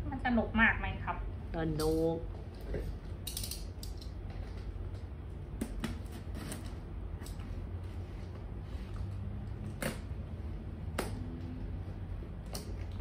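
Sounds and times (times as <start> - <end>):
steady low hum: 0.0 - 13.0.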